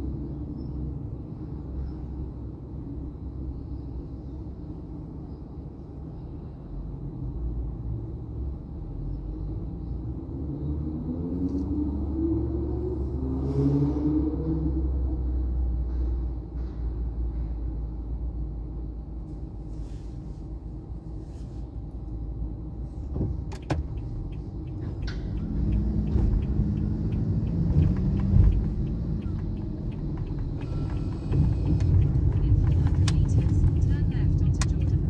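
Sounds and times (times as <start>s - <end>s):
car engine and road rumble: 0.0s - 35.0s
regular ticking: 23.6s - 35.0s.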